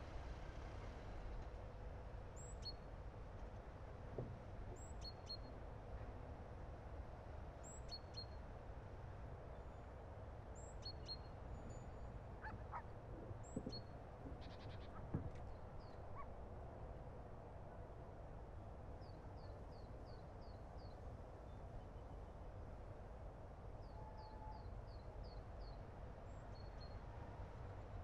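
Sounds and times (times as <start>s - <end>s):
soft knocks: 13.2s - 14.4s, 15.1s - 15.5s.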